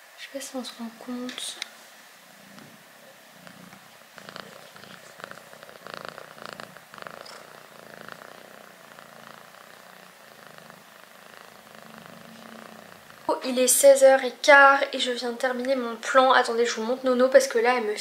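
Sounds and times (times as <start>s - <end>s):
cat purring: 0.4s - 14.5s.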